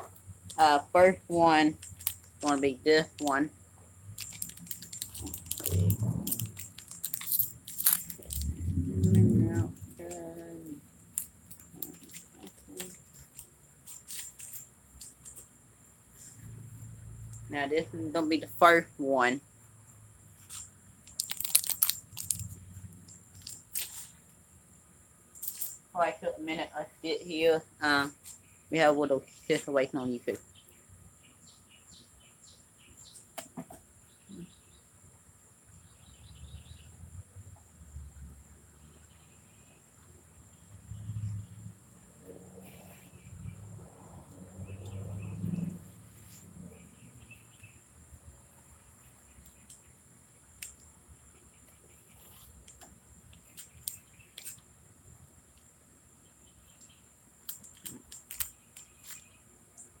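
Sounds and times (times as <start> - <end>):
candy wrapper crinkling: 1.8 - 3.3, 4.1 - 8.5, 11.1 - 14.6, 21.1 - 22.6, 23.4 - 24.1
small clicks: 1.8 - 3.4, 4.2 - 10.2, 20.5 - 24.1, 52.6 - 54.6, 56.8 - 59.3
person chewing: 4.2 - 8.5, 21.2 - 22.5.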